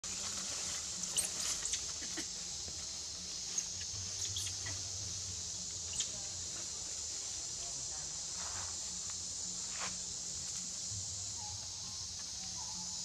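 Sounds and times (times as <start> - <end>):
high insect buzz: 0.0 - 13.0
high-pitched squeaks and chirps: 1.0 - 2.3, 3.5 - 4.8.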